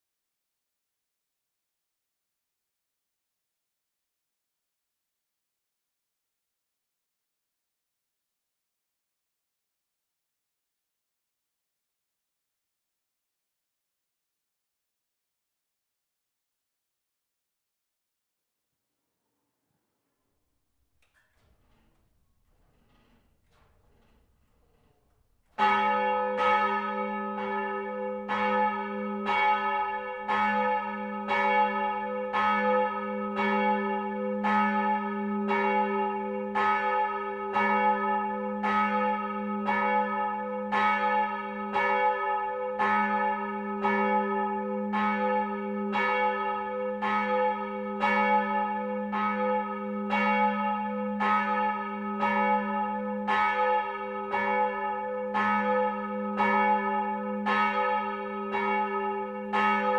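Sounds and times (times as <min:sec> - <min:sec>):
church bell ringing: 0:25.6 - 0:59.9.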